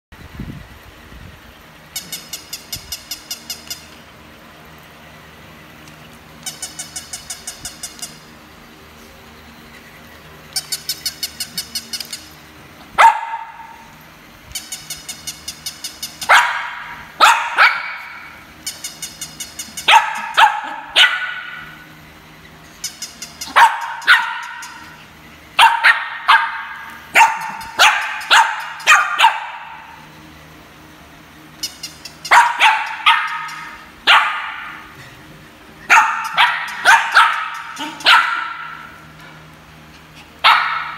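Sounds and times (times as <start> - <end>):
rapid electronic toy yaps: 1.9 - 4.0, 6.4 - 8.4, 10.5 - 12.4, 13.0 - 22.0, 22.7 - 30.1, 31.5 - 35.0, 35.8 - 39.2
dog barking: 13.0 - 13.8, 16.3 - 18.2, 19.9 - 21.7, 23.5 - 24.8, 25.6 - 29.9, 32.3 - 34.8, 35.9 - 38.9, 40.4 - 40.9.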